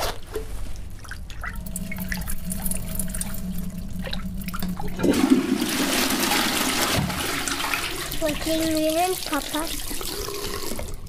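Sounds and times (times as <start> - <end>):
steady low hum: 0.6 - 8.9
water dripping and trickling: 0.7 - 5.4, 6.0 - 11.0.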